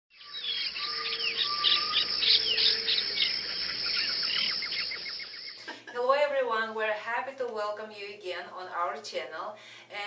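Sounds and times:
birds chirping and whistling: 0.1 - 5.6.

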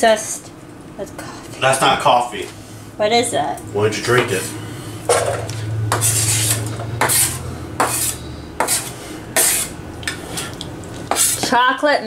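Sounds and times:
dishes knocking and scraping on counter: 5.1 - 11.6
kitchenware clattering: 5.1 - 11.6.

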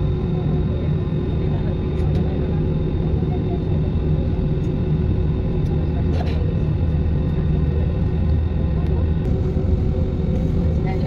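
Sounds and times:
jet engines rumbling in cabin: 0.0 - 11.0
thin steady whine: 7.1 - 11.0.

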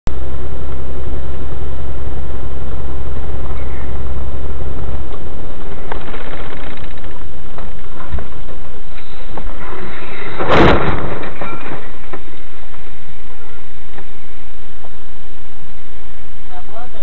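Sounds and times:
engine and road drone: 0.1 - 17.0.

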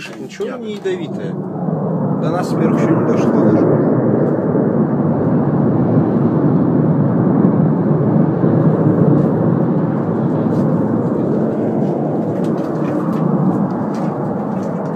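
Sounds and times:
distant gas fire rushing: 0.0 - 14.9.

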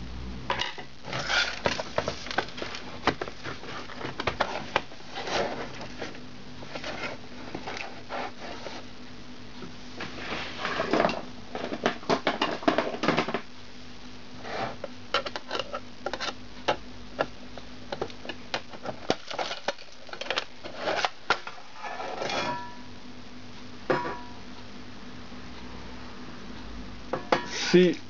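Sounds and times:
metal cover scraping rustle: 0.5 - 9.0, 10.0 - 13.2, 19.0 - 22.8.

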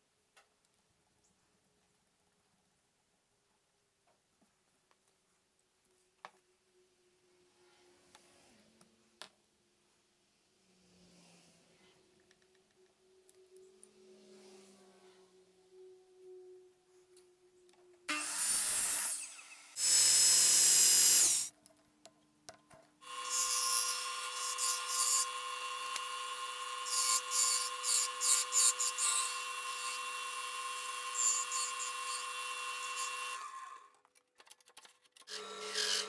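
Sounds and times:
wood lathe whine: 23.1 - 33.7.

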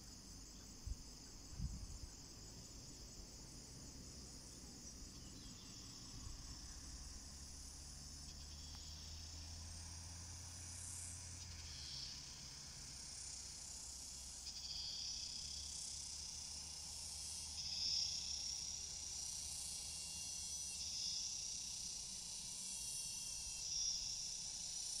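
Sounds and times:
forest insects buzzing: 0.0 - 25.0.

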